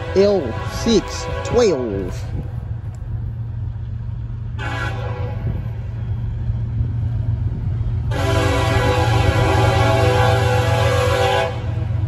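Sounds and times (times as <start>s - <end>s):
locomotive air horn: 0.0s - 2.3s, 4.5s - 6.0s, 8.0s - 12.0s
steady low rumble: 0.0s - 10.8s.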